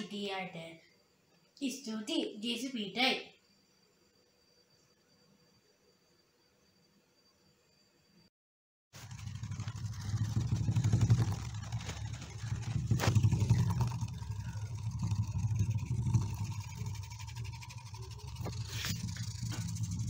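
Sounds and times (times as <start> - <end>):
small motor buzzing: 9.0 - 20.0.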